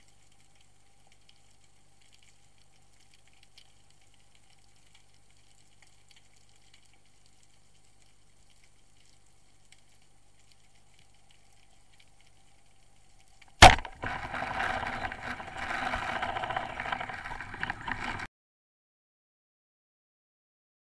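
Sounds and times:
speargun firing crack: 0:13.6 - 0:18.0
underwater rattling and churning: 0:13.6 - 0:18.3.

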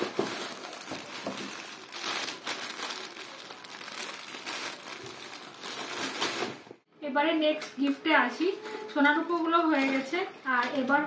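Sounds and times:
paper bag rustling: 0:00.0 - 0:06.8
plastic wrapping crinkling: 0:00.0 - 0:06.8.

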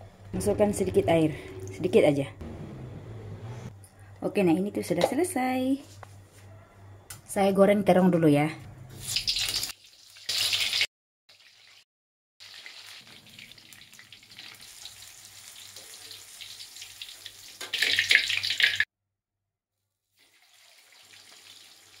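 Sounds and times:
oil sizzling in a wok: 0:08.9 - 0:11.8, 0:12.4 - 0:18.9, 0:20.1 - 0:22.0
fish frying in oil: 0:09.1 - 0:11.8, 0:12.4 - 0:18.9, 0:20.2 - 0:22.0.

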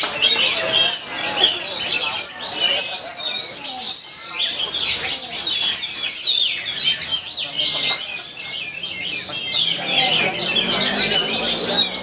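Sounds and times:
songbirds singing: 0:00.0 - 0:12.0.

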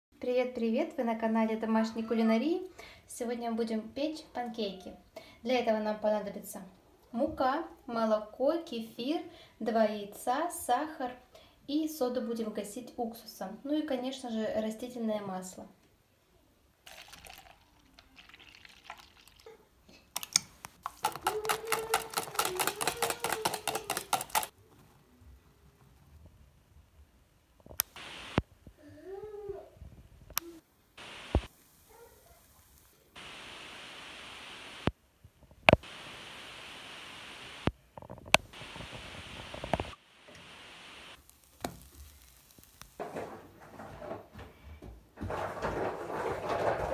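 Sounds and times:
utensil beating batter in bowl: 0:20.2 - 0:24.5
steady hiss: 0:27.8 - 0:28.6, 0:30.4 - 0:35.0, 0:35.6 - 0:43.0
rustling and scraping: 0:41.4 - 0:46.9.

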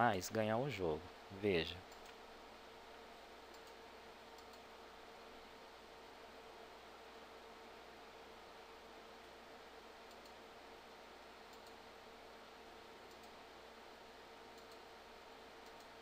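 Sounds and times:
faint hum: 0:00.0 - 0:16.0
room hiss: 0:00.0 - 0:16.0
faint clicks: 0:01.9 - 0:02.2, 0:03.5 - 0:03.8, 0:04.4 - 0:04.7, 0:10.1 - 0:10.4, 0:11.5 - 0:11.8, 0:13.1 - 0:13.4, 0:14.5 - 0:14.9, 0:15.6 - 0:16.0.

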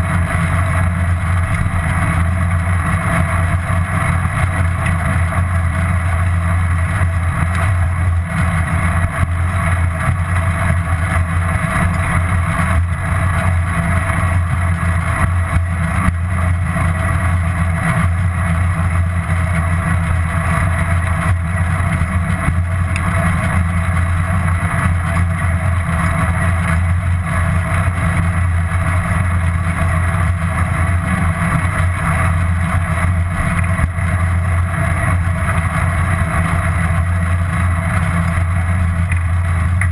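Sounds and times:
bicycle ride rumble: 0:00.0 - 0:39.9.

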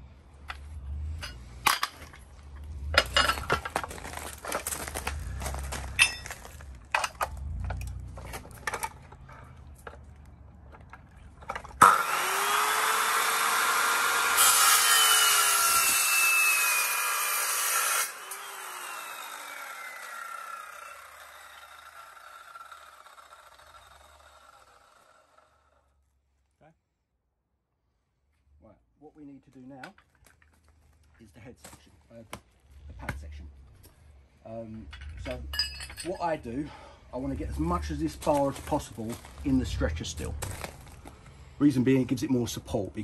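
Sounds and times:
metal bar knocking and scraping: 0:01.2 - 0:03.9
chop saw cutting metal: 0:11.8 - 0:25.8.

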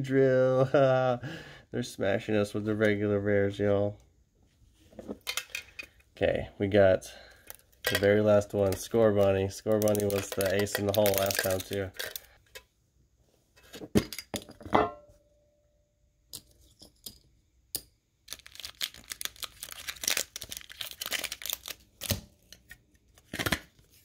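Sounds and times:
packaging crinkling and tearing: 0:08.6 - 0:12.4, 0:18.2 - 0:22.5.

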